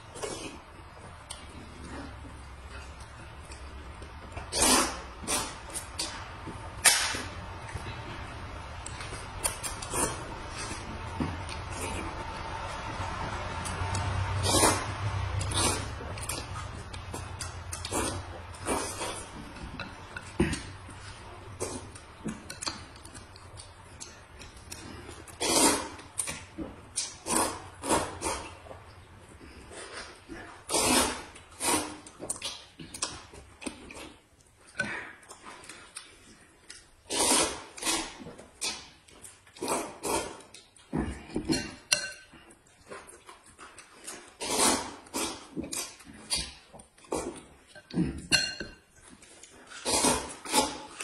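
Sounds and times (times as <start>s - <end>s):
chewing: 0.0s - 51.0s
noodles being slurped: 4.4s - 6.2s, 13.9s - 19.4s, 24.0s - 28.6s, 29.6s - 33.1s, 37.0s - 38.9s, 39.5s - 41.0s, 42.9s - 47.4s, 49.2s - 51.0s
tableware clink: 48.3s - 48.8s.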